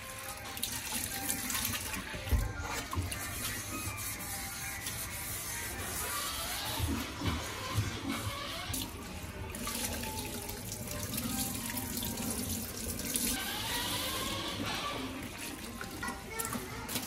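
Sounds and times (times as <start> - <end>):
tap water splashing into pan and sink: 0.0 - 17.0.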